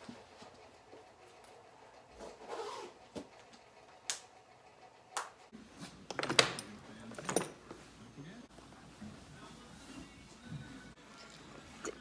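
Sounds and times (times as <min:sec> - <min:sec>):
metal buckles jingling: 0:06.1 - 0:07.8.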